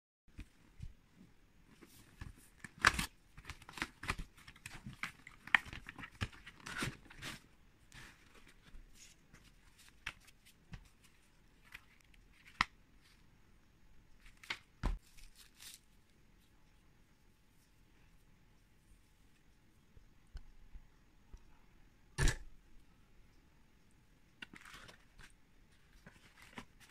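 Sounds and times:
paper rustling: 14.2s - 15.9s, 24.4s - 26.9s.

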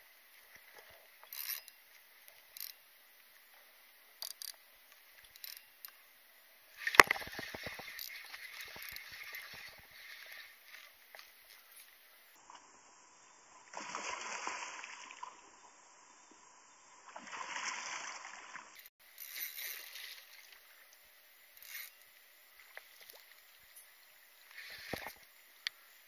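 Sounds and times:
water splashing beside a kayak: 6.7s - 12.0s, 22.6s - 25.9s.

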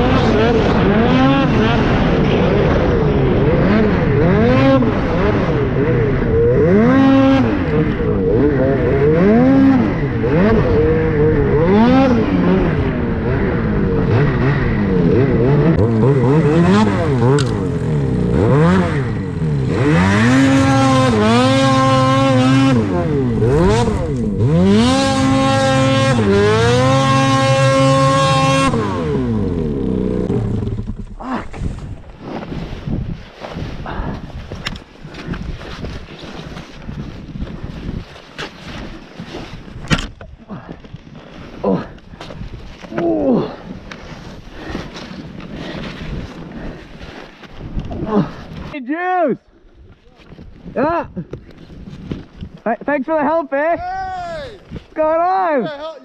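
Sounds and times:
snowmobile engine revving: 0.0s - 32.6s.

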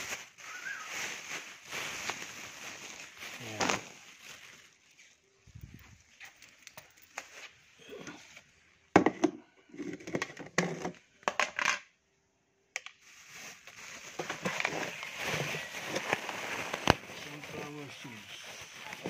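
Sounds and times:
plastic bag crinkling: 0.0s - 7.7s, 13.0s - 19.0s.

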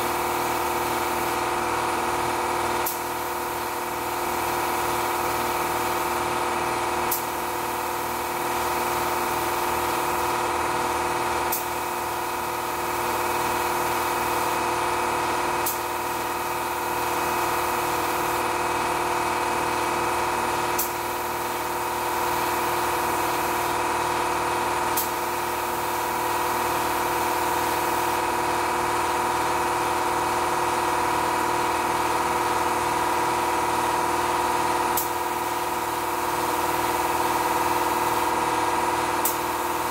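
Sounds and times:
spray gun hissing air: 0.0s - 2.0s, 2.8s - 6.3s, 7.0s - 10.4s, 11.5s - 14.6s, 15.6s - 18.6s, 20.8s - 23.8s, 24.9s - 28.2s, 34.9s - 39.9s
air compressor humming: 0.0s - 39.9s.

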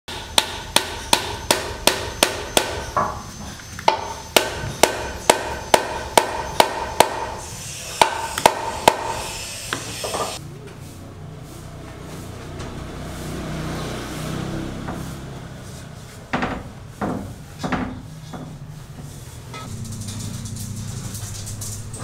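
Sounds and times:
hammer striking nail: 0.1s - 3.2s, 3.9s - 7.4s, 8.0s - 10.3s.

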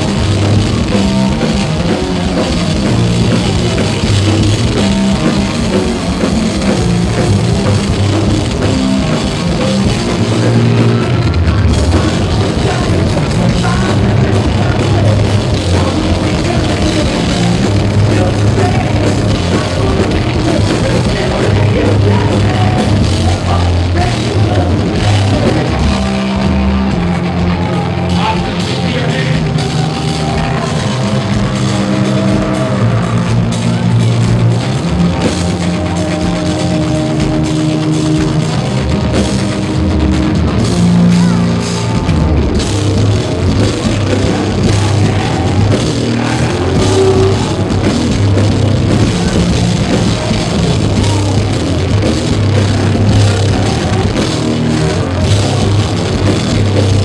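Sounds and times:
heavy metal band playing: 0.0s - 57.0s
person singing: 10.0s - 34.3s, 43.6s - 57.0s.

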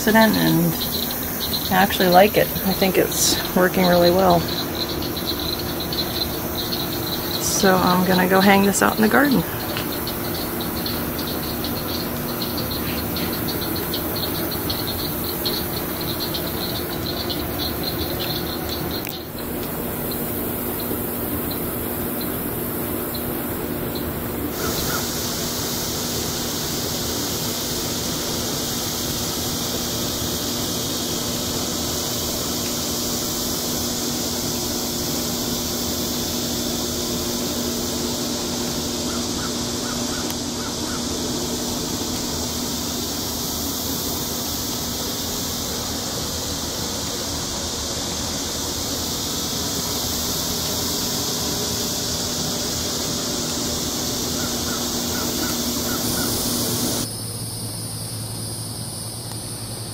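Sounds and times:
insects chirping chorus: 0.0s - 59.9s
low steady hum: 0.0s - 59.9s
short bird calls: 24.5s - 25.3s, 54.3s - 57.0s.

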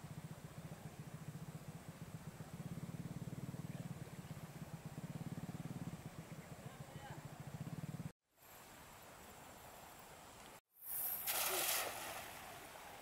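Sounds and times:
faint small engine idling: 0.0s - 11.2s.

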